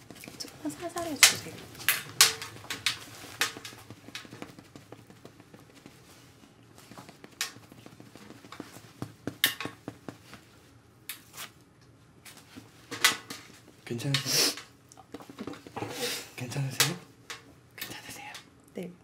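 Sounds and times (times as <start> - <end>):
makeup sponge patting face: 0.0 - 11.6.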